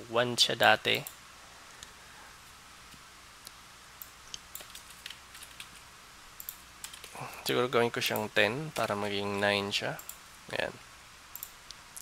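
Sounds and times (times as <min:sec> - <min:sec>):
low steady hiss: 0:00.0 - 0:12.0
keyboard and mouse clicks: 0:04.3 - 0:07.2, 0:11.3 - 0:12.0.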